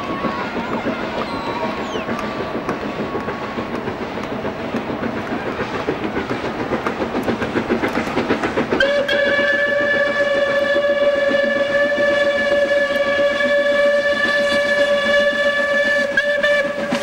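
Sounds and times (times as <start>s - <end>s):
steam locomotive exhaust chuffing: 0.0s - 17.0s
steam whistle blast: 8.7s - 17.0s.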